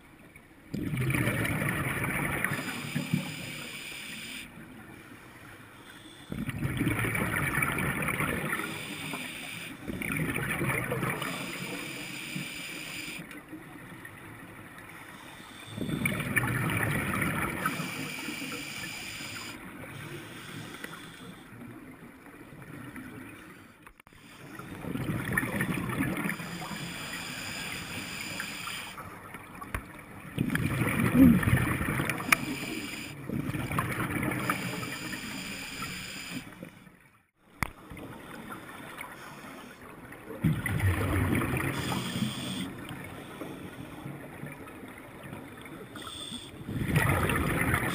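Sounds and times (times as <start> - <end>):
underwater background: 0.0 - 47.9
underwater exhaled bubbles gurgling: 0.7 - 3.7, 6.3 - 15.1, 15.7 - 23.5, 24.4 - 29.6, 30.2 - 35.5, 40.0 - 47.9.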